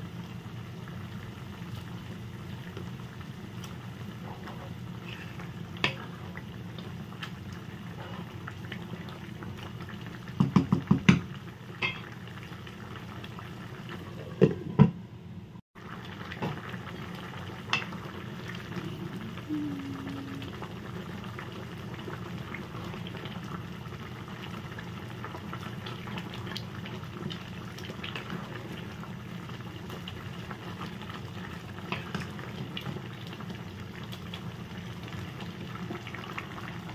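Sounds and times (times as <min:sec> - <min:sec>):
soup bubbling in a pan: 0:00.0 - 0:14.9, 0:15.8 - 0:36.9
spatula knocking against pan: 0:10.4 - 0:12.0.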